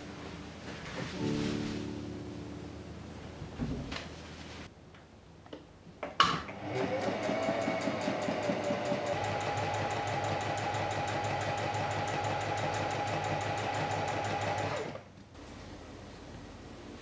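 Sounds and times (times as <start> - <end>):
sewing machine motor whine: 6.5 - 15.0.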